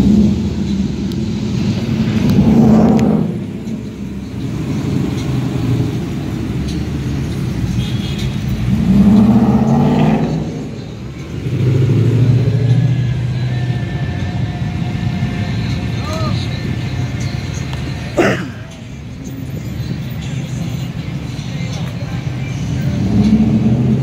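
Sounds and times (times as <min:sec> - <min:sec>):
engine revving: 0:00.0 - 0:03.8, 0:08.3 - 0:15.8, 0:22.6 - 0:24.0
deep engine passing: 0:00.0 - 0:07.7, 0:08.4 - 0:17.0, 0:22.2 - 0:24.0
traffic passing slowly: 0:00.0 - 0:24.0.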